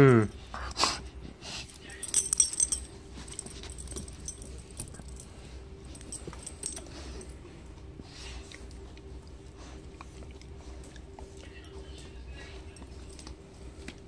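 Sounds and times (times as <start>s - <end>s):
puppy clicks and rustles: 1.6s - 7.3s
collar jingling: 1.6s - 7.4s.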